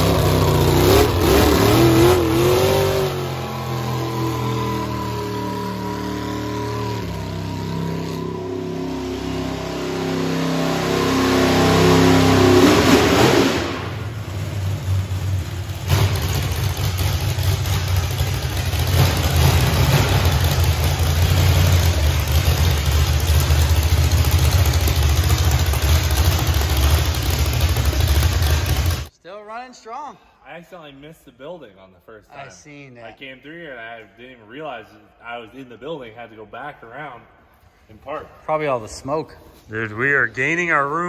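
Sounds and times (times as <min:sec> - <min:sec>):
car engine revving: 0:00.0 - 0:29.1.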